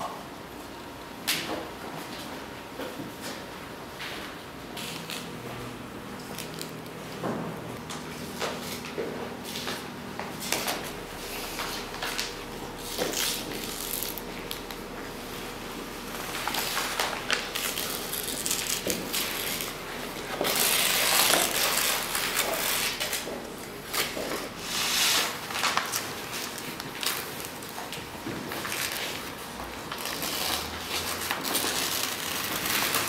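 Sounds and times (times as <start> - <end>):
photo paper tearing: 16.2 - 23.3, 23.9 - 27.5, 29.9 - 33.0.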